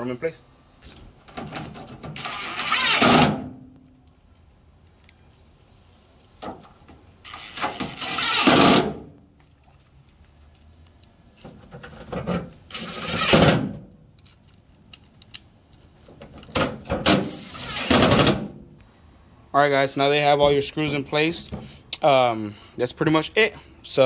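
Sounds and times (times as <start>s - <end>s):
power driver running screws: 2.2s - 3.3s, 7.3s - 8.9s.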